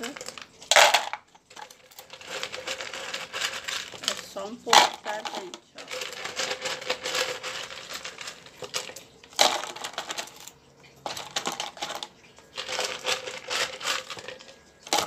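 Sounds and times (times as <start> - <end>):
gravel clattering into plastic pot: 0.0 - 15.0.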